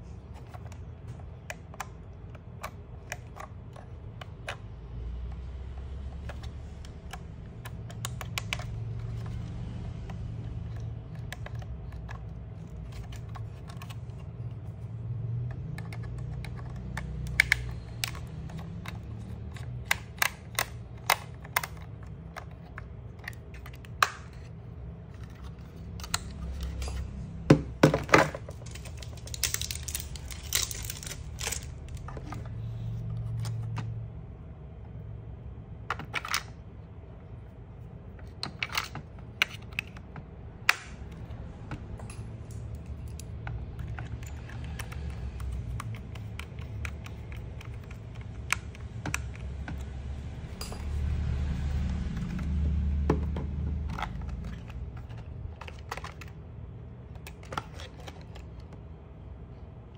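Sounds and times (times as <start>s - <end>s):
steady low hum: 0.0s - 59.9s
plastic clicks and rattles: 6.1s - 14.8s, 15.4s - 32.5s, 38.2s - 50.4s, 51.6s - 56.4s.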